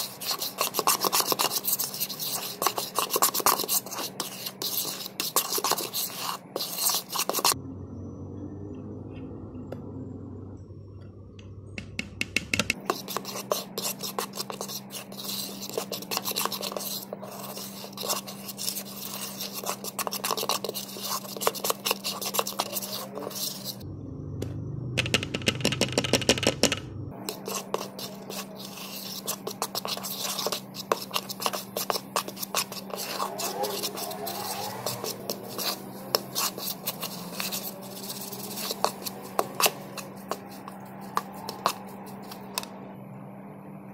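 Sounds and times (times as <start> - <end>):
fork scraping a mixing bowl: 0.0 - 7.6, 12.7 - 23.8, 27.2 - 42.7
steady low hum: 7.4 - 43.9.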